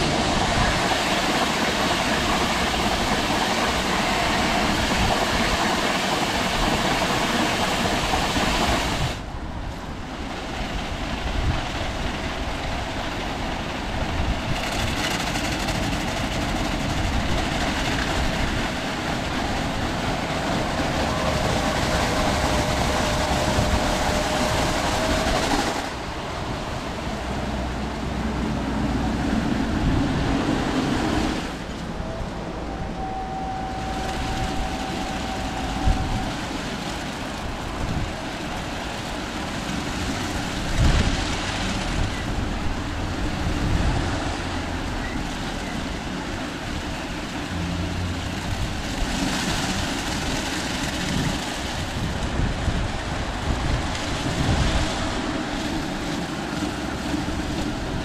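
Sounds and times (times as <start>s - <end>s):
car wash machine running: 0.0s - 58.0s
thin whine: 19.2s - 27.0s, 31.6s - 38.7s.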